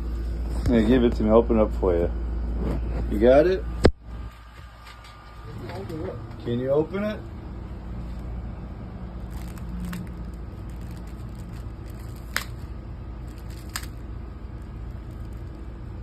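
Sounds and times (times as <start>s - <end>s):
low background hum: 0.0s - 16.0s
wrapper crinkling: 9.1s - 15.9s.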